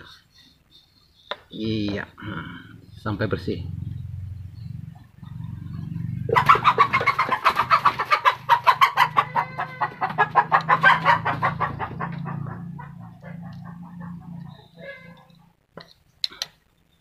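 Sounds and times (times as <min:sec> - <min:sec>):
chicken clucking: 0:05.1 - 0:15.6.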